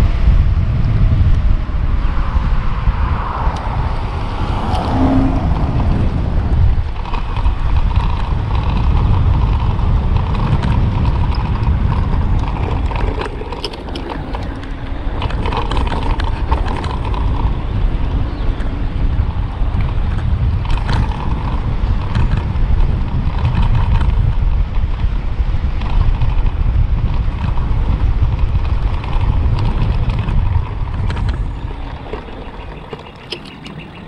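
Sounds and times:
bicycle tyre rumble: 0.0 - 34.0
wind on microphone: 0.0 - 34.0
light rattles: 6.7 - 17.7.

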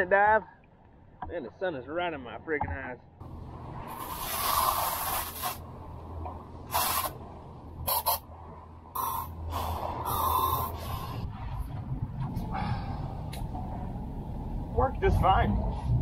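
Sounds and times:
low hum: 0.4 - 16.0
compressed air hissing: 3.9 - 5.6, 6.7 - 7.2, 7.8 - 8.2, 9.0 - 11.3.

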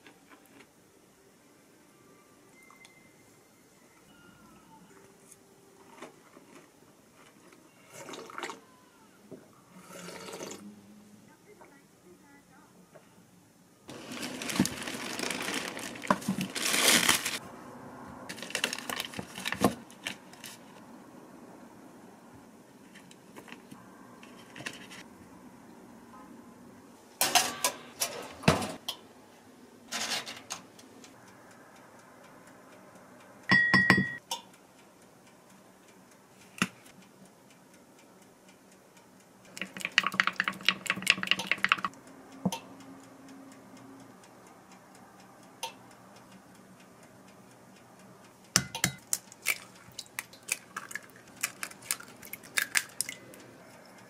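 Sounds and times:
knocks and clinks on glass: 33.5 - 34.4
eggs cracked against glass: 48.6 - 53.2.

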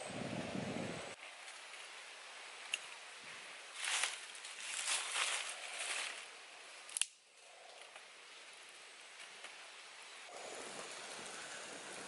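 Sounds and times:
fire crackling and hissing: 0.0 - 12.0
sharp snap of fire: 6.9 - 7.2.

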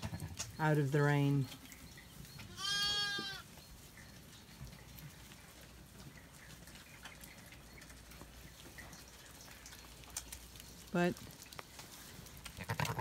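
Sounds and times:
faint ticks and rustles: 0.0 - 13.0
lamb bleating: 2.5 - 3.4, 12.6 - 13.0.

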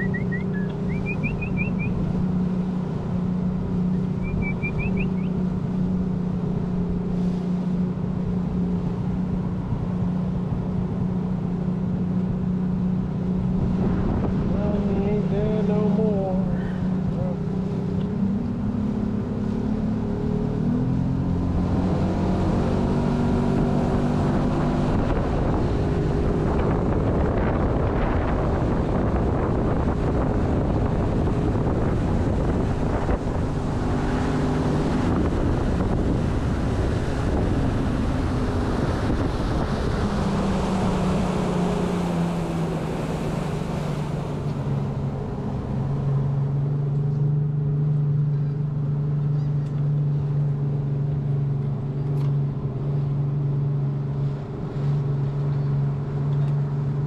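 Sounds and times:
wind and water rushing: 0.0 - 49.2, 49.9 - 57.0
boat engine running: 0.0 - 57.0.

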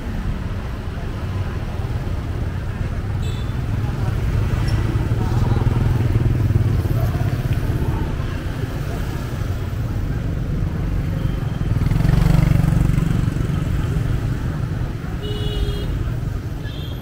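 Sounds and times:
motorbikes passing: 0.0 - 17.0.

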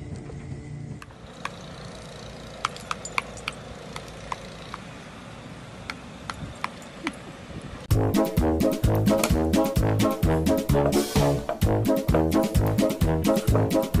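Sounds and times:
brass jazz music: 7.9 - 14.0.

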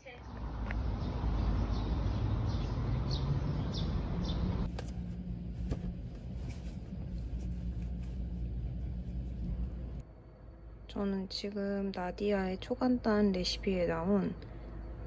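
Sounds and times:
traffic rumble: 0.0 - 10.0
bird chirps: 0.3 - 4.7
rumble inside a car: 4.6 - 10.0.

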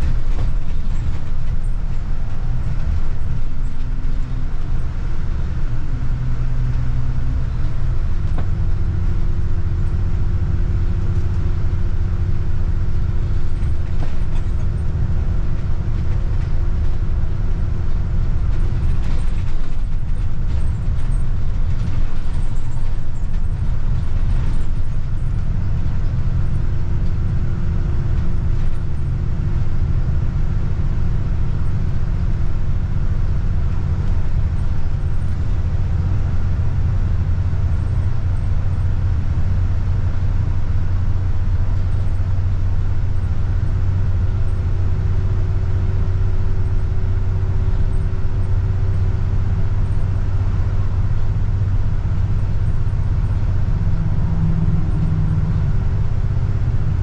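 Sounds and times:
bus engine and road drone: 0.0 - 57.0
faint whine: 45.6 - 57.0.

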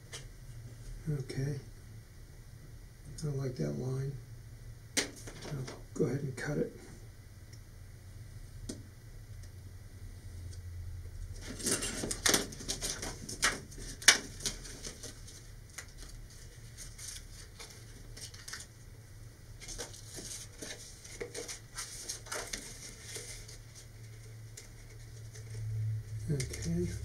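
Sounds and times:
plastic wrap clicking and crackling: 16.8 - 18.7, 19.6 - 23.6.

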